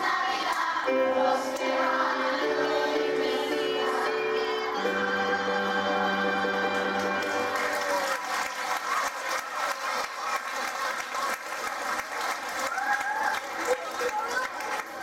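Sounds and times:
children's choir with keyboard: 0:00.0 - 0:11.9
audience applauding: 0:06.8 - 0:15.0.

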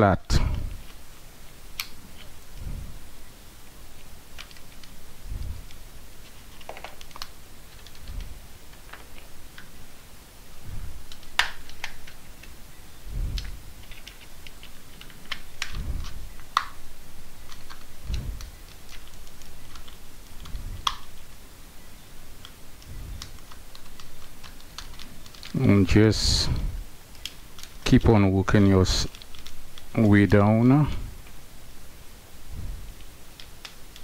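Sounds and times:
plastic tabs snapping: 0:11.1 - 0:12.6, 0:17.5 - 0:17.9.

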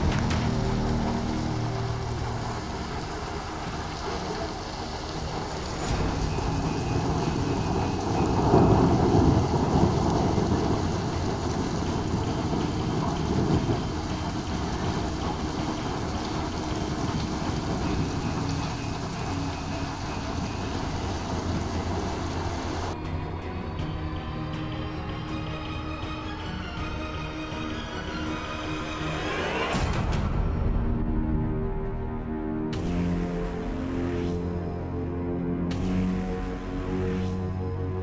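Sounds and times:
heavy rain on street: 0:00.0 - 0:23.0, 0:23.7 - 0:30.1, 0:32.7 - 0:38.0
low rumble: 0:00.0 - 0:23.0
music: 0:00.0 - 0:38.0.

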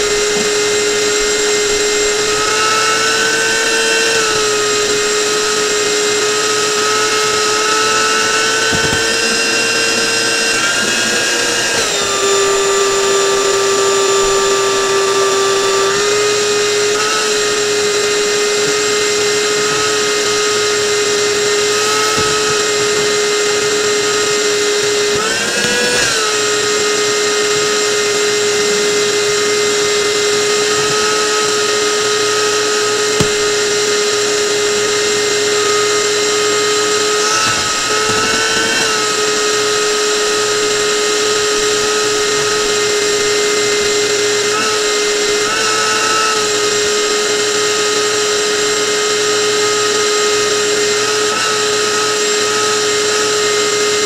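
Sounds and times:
electric power tool whining: 0:00.0 - 0:54.0.

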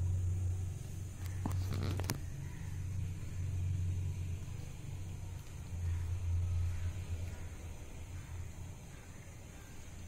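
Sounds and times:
cats purring: 0:00.0 - 0:10.0.

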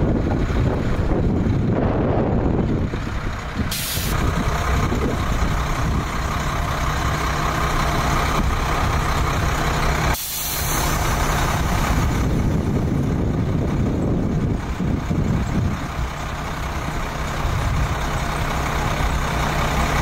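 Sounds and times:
fire engine idling: 0:00.0 - 0:20.0
air hiss: 0:03.7 - 0:04.2, 0:10.1 - 0:11.8.

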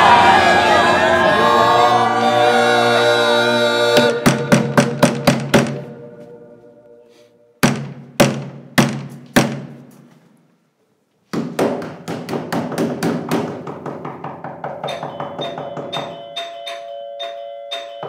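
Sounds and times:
music chord: 0:00.0 - 0:07.6
rhythmic percussive music: 0:04.0 - 0:06.0.

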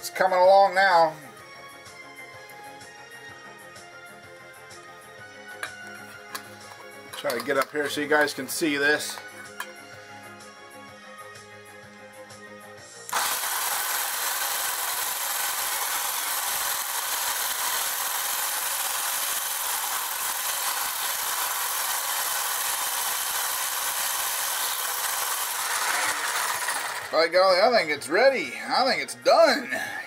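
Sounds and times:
music: 0:00.0 - 0:16.5, 0:26.7 - 0:30.0
electric hand mixer whirring: 0:13.0 - 0:27.4.

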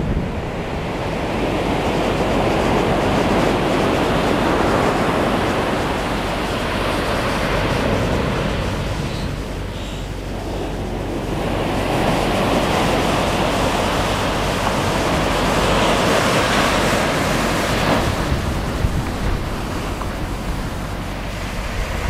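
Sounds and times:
ocean surf breaking: 0:00.0 - 0:22.0
wind on microphone: 0:00.0 - 0:22.0.

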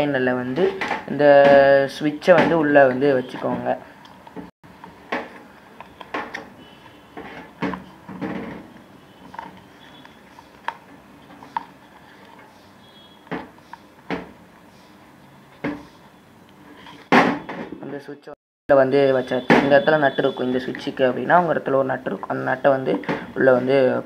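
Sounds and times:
plastic knocks clicks and scrapes: 0:07.2 - 0:12.4.

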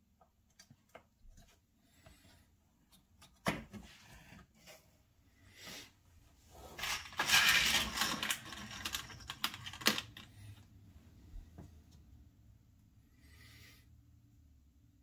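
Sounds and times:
metal pins rattling in plastic box: 0:06.8 - 0:10.3.

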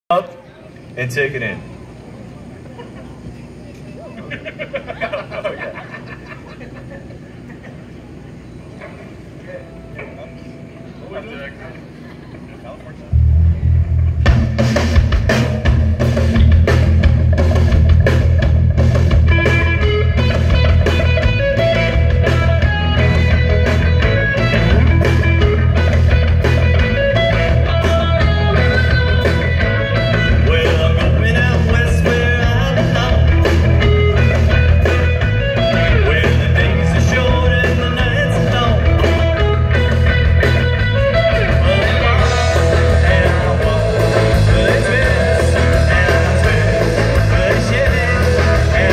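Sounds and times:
electric guitars: 0:08.7 - 0:48.9
bass guitar: 0:13.0 - 0:48.9
drum kit: 0:13.2 - 0:48.9.

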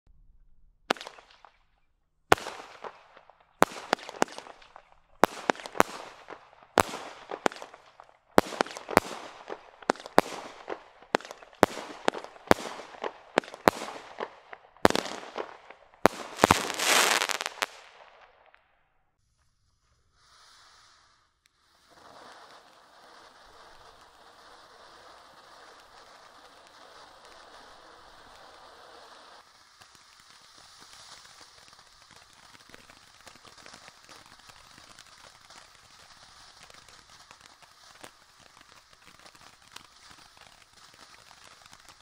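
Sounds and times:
firework cake bangs and crackle: 0:00.9 - 0:18.7, 0:20.2 - 0:42.0.

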